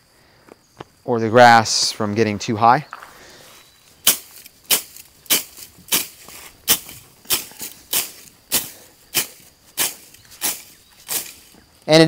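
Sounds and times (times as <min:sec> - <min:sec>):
sickle swishing through grass: 0:04.0 - 0:11.7.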